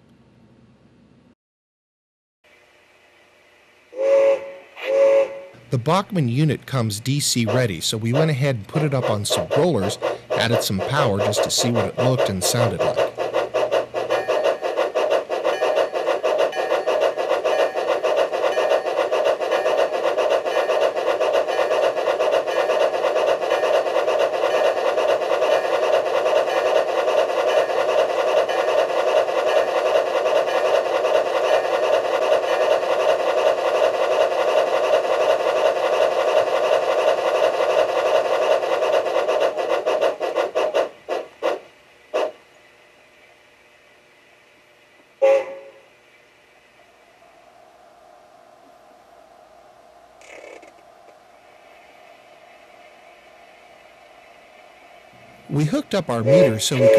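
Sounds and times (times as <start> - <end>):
rapid steam chuff: 4.0 - 42.4, 51.3 - 56.9.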